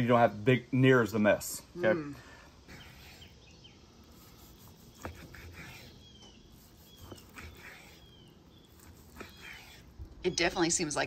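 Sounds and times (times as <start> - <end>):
faint bird chirps: 1.8 - 11.0
knife slicing meat: 4.1 - 10.0.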